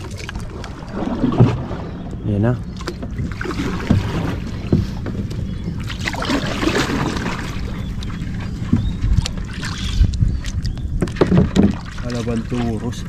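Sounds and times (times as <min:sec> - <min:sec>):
water splashing: 0:00.0 - 0:13.0
wind rumble on microphone: 0:00.0 - 0:13.0.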